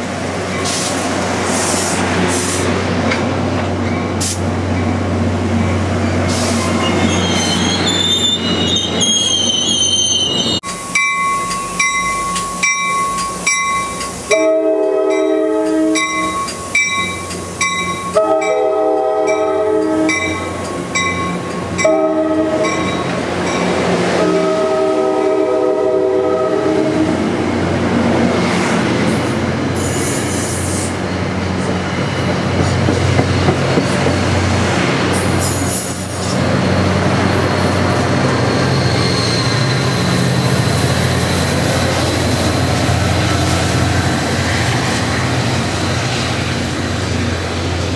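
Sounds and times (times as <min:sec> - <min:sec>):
train rumbling past: 0:00.0 - 0:47.9
crossing bell dinging: 0:10.6 - 0:25.5
train air horn blasts: 0:14.3 - 0:16.4, 0:18.1 - 0:20.5, 0:21.8 - 0:22.9, 0:24.2 - 0:27.2.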